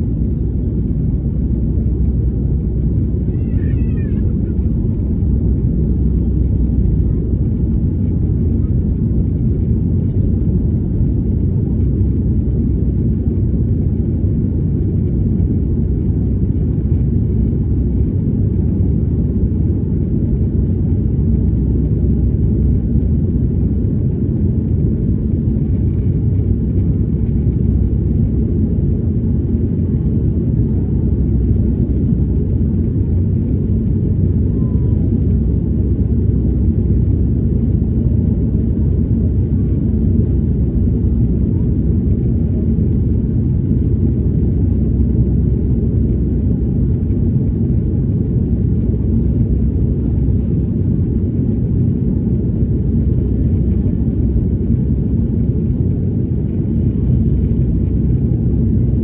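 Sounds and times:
jet engine cabin rumble: 0.0s - 59.0s.

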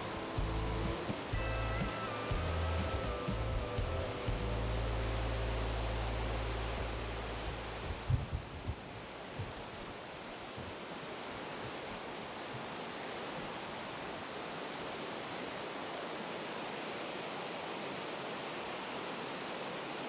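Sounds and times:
flowing river water: 0.0s - 20.0s
low thumps: 6.7s - 9.8s.

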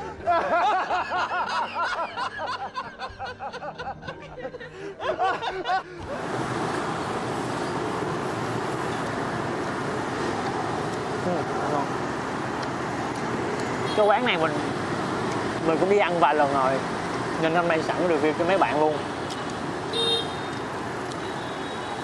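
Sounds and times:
man laughing heartily: 0.0s - 6.1s
street traffic noise: 5.0s - 22.0s.

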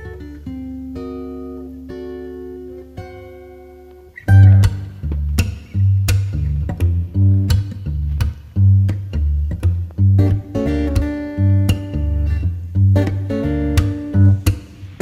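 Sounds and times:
guitar music: 0.0s - 15.0s
deep bass notes: 4.4s - 15.0s.

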